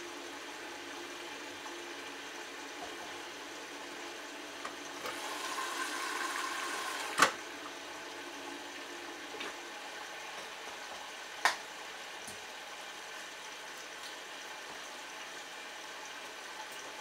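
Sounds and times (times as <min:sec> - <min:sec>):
water flowing into washing machine: 0:00.0 - 0:11.1
washing machine sharp click: 0:07.1 - 0:07.4.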